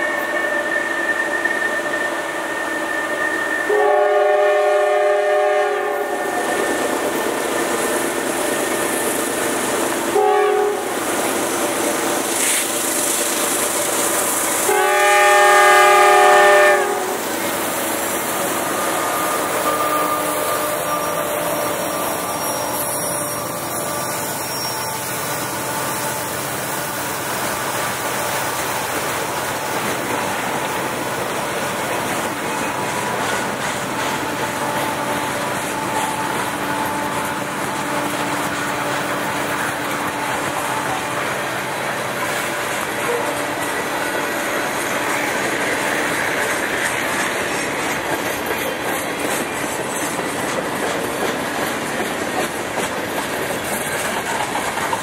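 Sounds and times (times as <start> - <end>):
train horn blasts: 0.0 - 6.4, 10.1 - 11.0, 14.6 - 17.3, 18.4 - 26.4
diesel locomotives working hard: 0.0 - 55.0.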